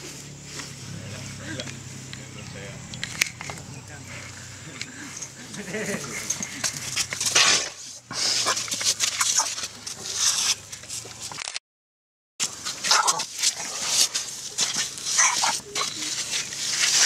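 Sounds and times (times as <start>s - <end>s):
scuffling: 12.4s - 17.0s
baby elephant squeaky whimpering: 15.2s - 16.2s.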